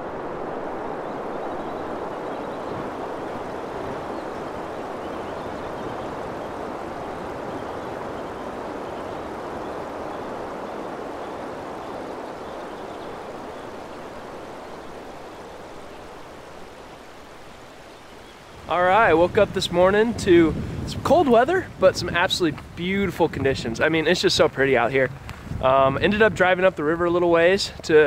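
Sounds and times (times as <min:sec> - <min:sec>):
stream water flowing: 0:00.0 - 0:18.7.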